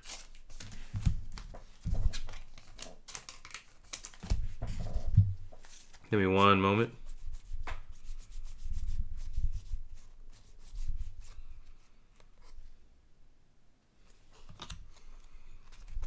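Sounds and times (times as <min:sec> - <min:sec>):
cards rubbing and sliding: 0:05.6 - 0:06.1, 0:07.0 - 0:12.6.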